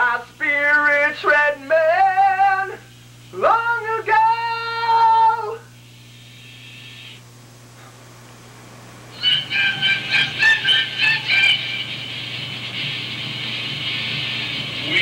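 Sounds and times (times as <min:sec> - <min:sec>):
man singing with vibrato: 0:00.0 - 0:05.7
low hum: 0:04.2 - 0:15.0.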